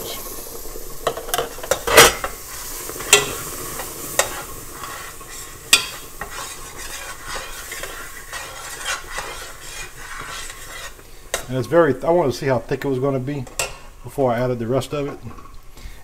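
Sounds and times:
hot mixture sizzling: 0.0s - 16.0s
metal spoon scraping a pot: 4.2s - 11.5s.

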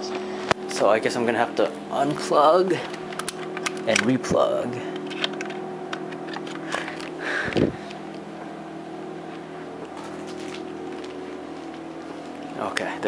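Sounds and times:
steady low hum: 0.0s - 13.0s
cable rustle and thump: 9.8s - 12.6s.

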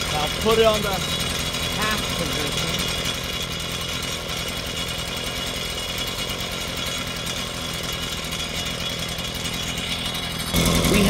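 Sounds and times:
small gas engine running: 0.0s - 11.0s.

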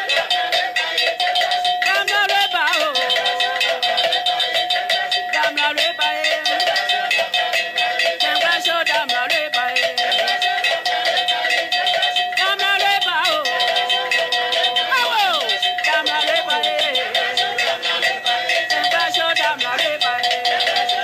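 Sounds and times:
fast percussion strikes: 0.0s - 21.0s
voices singing: 0.0s - 21.0s
steady held tone: 10.0s - 21.0s.

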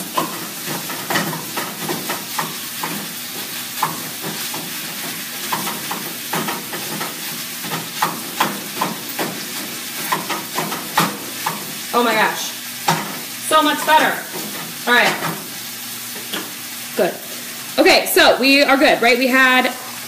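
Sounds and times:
tool knocking and scraping pan: 0.0s - 11.7s
food sizzling in a frying pan: 0.0s - 20.0s.

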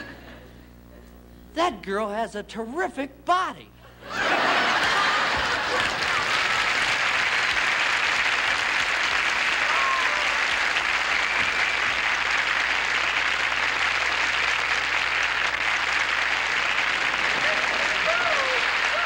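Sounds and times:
audience applauding: 4.3s - 19.0s.

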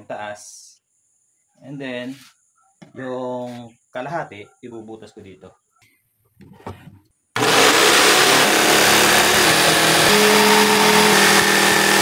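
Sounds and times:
electric jigsaw cutting plywood: 7.4s - 12.0s.

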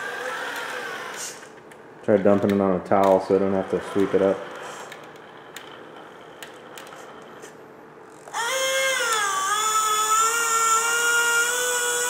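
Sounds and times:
electric motor whining: 0.0s - 1.6s, 8.1s - 12.0s.

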